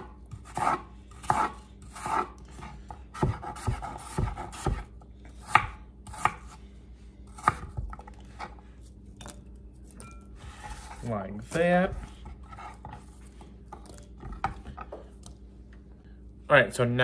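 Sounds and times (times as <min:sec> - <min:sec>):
knife chopping apple on wooden board: 0:00.0 - 0:06.6, 0:07.3 - 0:08.6.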